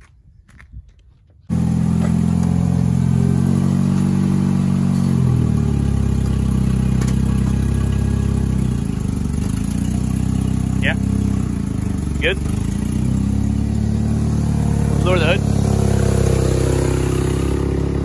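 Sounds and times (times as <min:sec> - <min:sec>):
car engine idling: 0:01.5 - 0:18.0.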